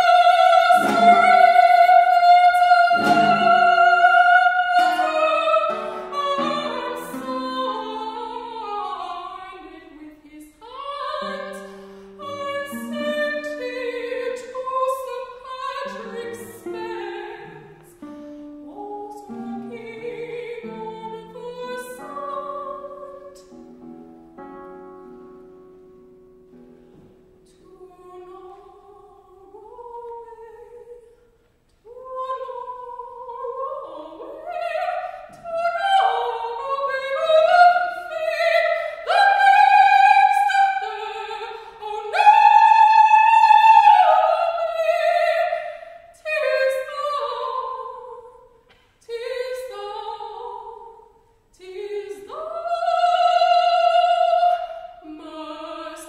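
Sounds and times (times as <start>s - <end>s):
soprano singing operatically: 0.0s - 23.5s, 27.4s - 31.2s, 31.8s - 56.0s
singer breathing: 11.6s - 12.2s.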